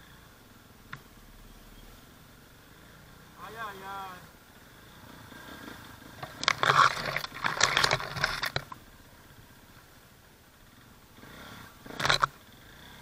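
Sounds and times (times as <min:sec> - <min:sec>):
branches scraping and rustling: 0:05.4 - 0:08.8.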